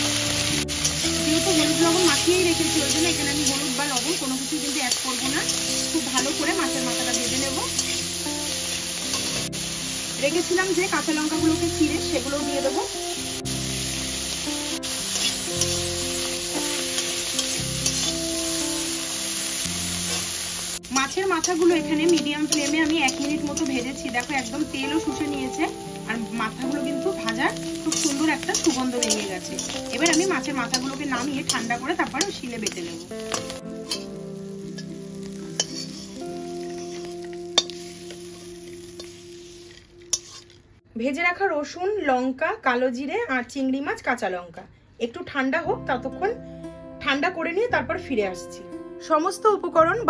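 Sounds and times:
food sizzling in hot oil: 0.0s - 40.8s
soft background music: 0.0s - 40.8s, 45.0s - 50.0s
metal spatula scraping pan: 17.0s - 18.2s, 27.2s - 34.2s, 35.5s - 40.6s.

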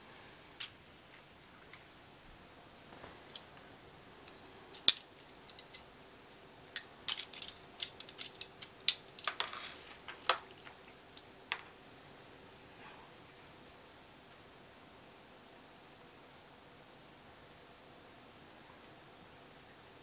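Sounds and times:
metal tongs clicking: 4.3s - 5.9s, 6.7s - 9.4s.

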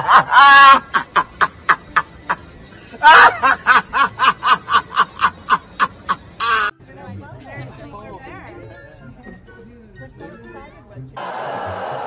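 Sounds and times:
man laughing hysterically: 0.0s - 6.7s.

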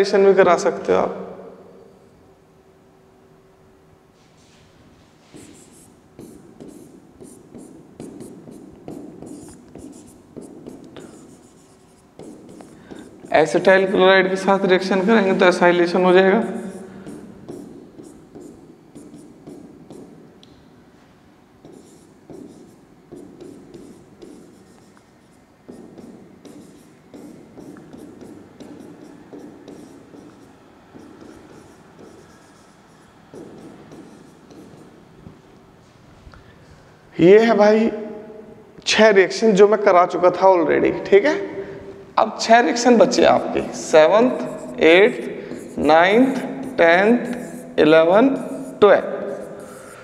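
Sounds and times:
pen scratching while writing: 5.3s - 14.0s, 16.4s - 20.2s, 21.6s - 35.0s, 43.6s - 50.0s.

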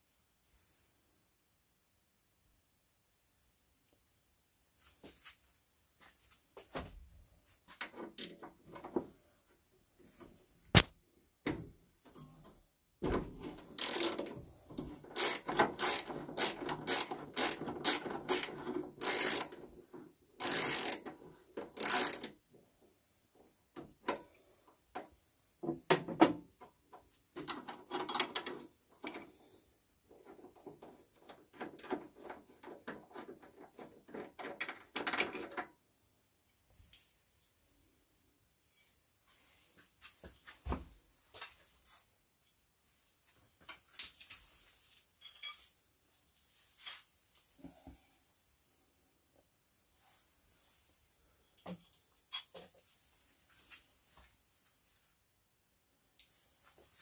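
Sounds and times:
metal parts clicking and rattling: 13.6s - 19.6s, 20.4s - 22.3s, 27.4s - 29.3s.

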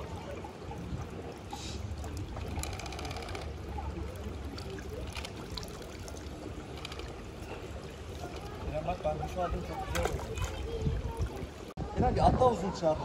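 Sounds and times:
water trickling: 0.0s - 11.8s.

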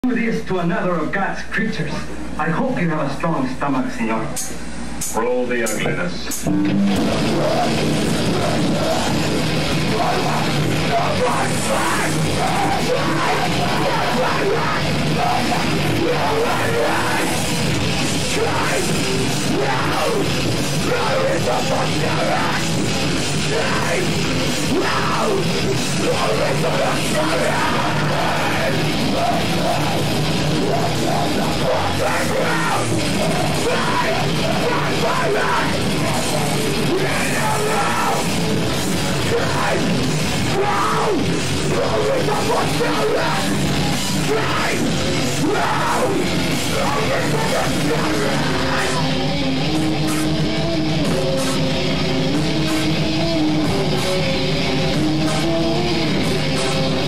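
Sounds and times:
metal band playing live: 6.4s - 57.0s.

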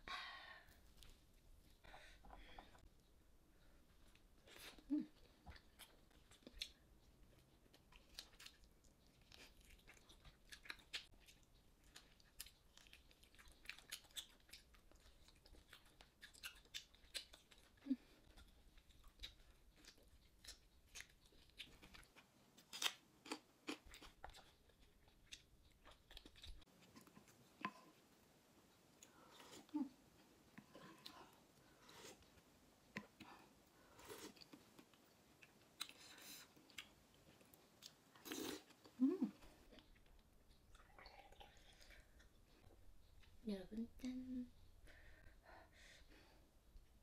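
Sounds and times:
person chewing ribs: 4.0s - 28.0s, 30.5s - 39.0s
sharp eating clicks and smacks: 5.2s - 28.0s.

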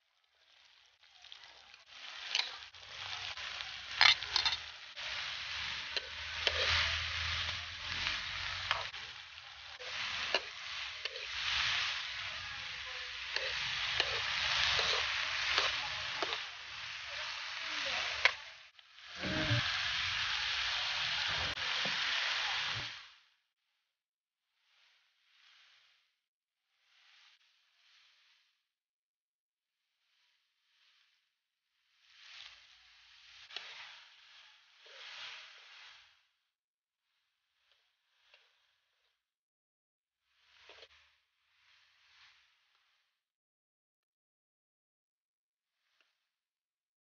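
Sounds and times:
vegetables sizzling in hot oil: 0.0s - 23.3s, 31.8s - 36.3s, 40.2s - 43.2s
metal spatula scraping pan: 2.3s - 9.1s, 13.3s - 16.5s.

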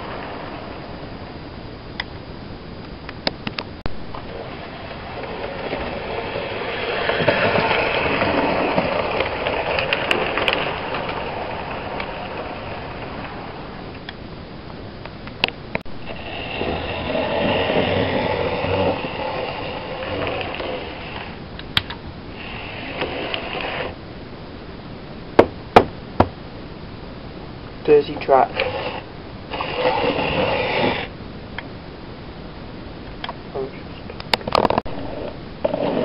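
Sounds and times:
wheels rolling on rails: 0.0s - 24.1s, 27.7s - 31.2s, 33.1s - 36.0s
model train motor whirring: 4.3s - 13.5s, 16.0s - 21.4s, 22.4s - 24.0s, 27.9s - 31.1s
sharp clicks: 21.6s - 22.0s.

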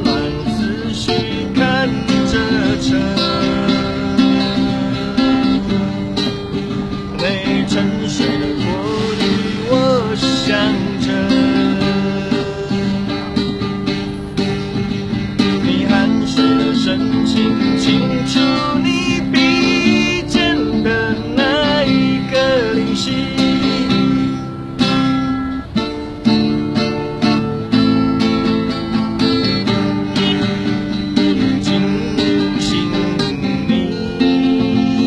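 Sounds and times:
person singing: 0.0s - 13.9s, 15.4s - 24.5s, 29.7s - 35.0s
acoustic guitar chords: 0.0s - 35.0s.

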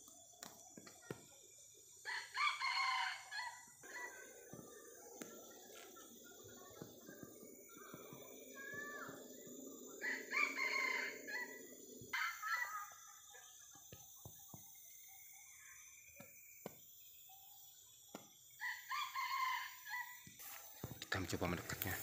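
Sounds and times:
rooster crowing: 2.1s - 4.7s, 7.9s - 12.9s, 18.6s - 20.3s.

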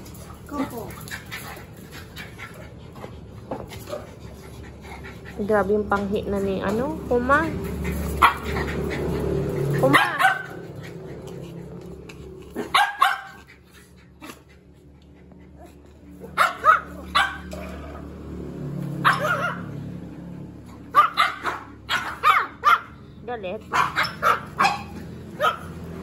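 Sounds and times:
dogs barking: 7.6s - 14.5s, 15.4s - 18.2s, 18.9s - 20.0s, 20.8s - 23.1s, 23.7s - 26.0s.

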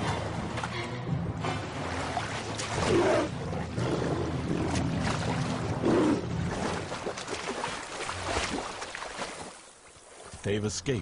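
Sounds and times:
churning water: 0.0s - 10.7s
lions splashing in water: 1.4s - 10.3s.

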